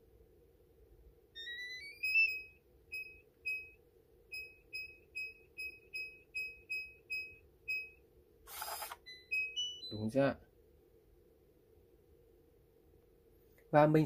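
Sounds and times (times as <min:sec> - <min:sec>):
short keypad beeps: 0:08.6 - 0:10.0.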